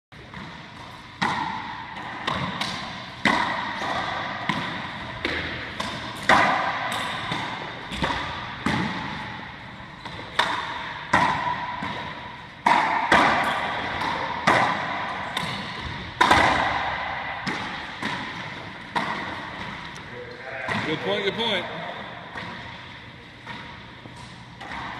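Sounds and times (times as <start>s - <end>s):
racquetball hits echoing: 0.2s - 24.9s.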